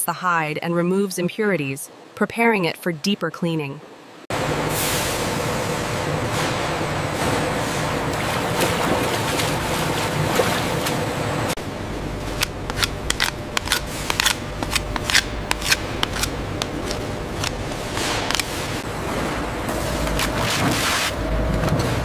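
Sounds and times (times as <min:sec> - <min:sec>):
knife scraping wet hide: 0:12.7 - 0:18.8.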